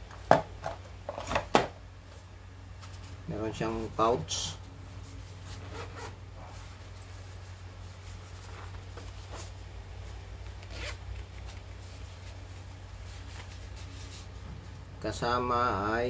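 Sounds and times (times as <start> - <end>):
zipper opening: 5.6 - 6.2, 10.5 - 11.5.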